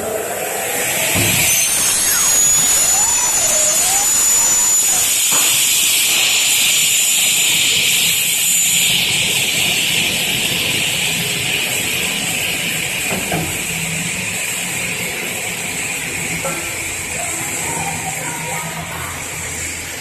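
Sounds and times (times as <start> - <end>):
saw blade high whine: 0.0 - 13.1
loud hiss: 0.0 - 20.0.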